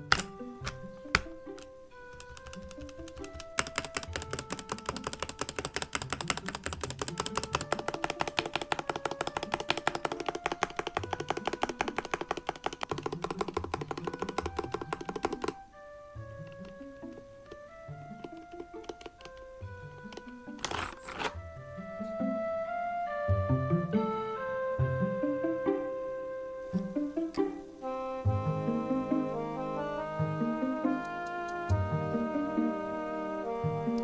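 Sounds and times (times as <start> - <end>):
fast typing on mechanical keyboard: 1.2 - 15.6.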